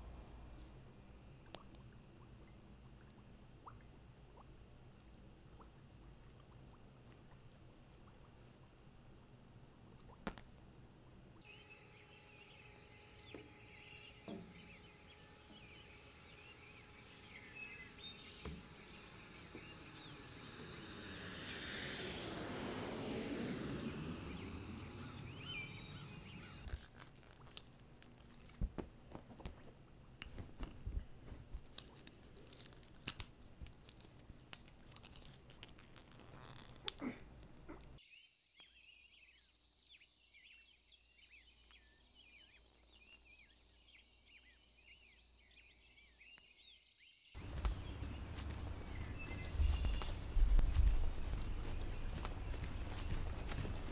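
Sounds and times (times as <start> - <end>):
birds chirping: 11.4 - 26.7, 35.0 - 53.9
insects chirping: 11.4 - 26.8, 37.8 - 53.9
outdoor rumble: 14.1 - 26.7, 47.4 - 53.9
smooth sweeping sound: 18.2 - 26.6
small sharp clicks and crackles: 26.6 - 38.0.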